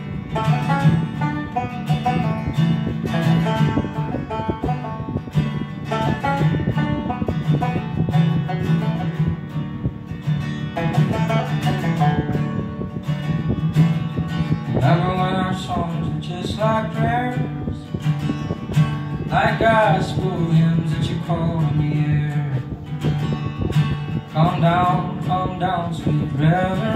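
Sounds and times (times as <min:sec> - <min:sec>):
acoustic guitar and banjo folk music: 0:00.0 - 0:26.9
man singing: 0:14.8 - 0:17.9, 0:19.3 - 0:22.7, 0:24.3 - 0:26.9.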